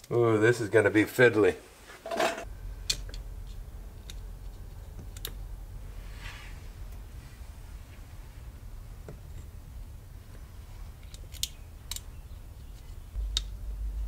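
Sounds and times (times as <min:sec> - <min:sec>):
steady low hum: 0:02.2 - 0:14.0
sharp metallic clicks: 0:11.0 - 0:12.2.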